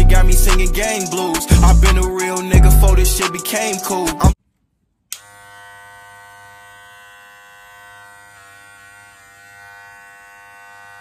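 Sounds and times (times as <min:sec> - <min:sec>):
hair clipper buzzing: 0:05.1 - 0:11.0.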